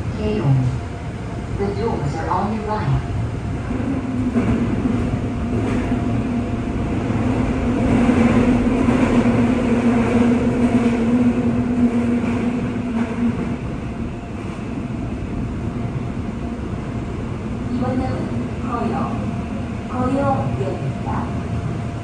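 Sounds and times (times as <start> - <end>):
train wheels rumbling on rails: 1.4 - 22.0.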